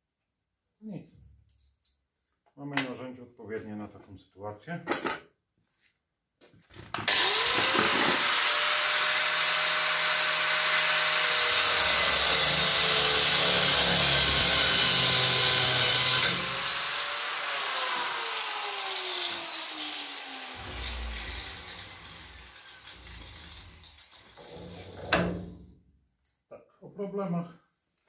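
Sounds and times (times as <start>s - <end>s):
angle grinder whining: 7.0s - 25.0s
grinder cutting metal bolt: 7.0s - 25.5s.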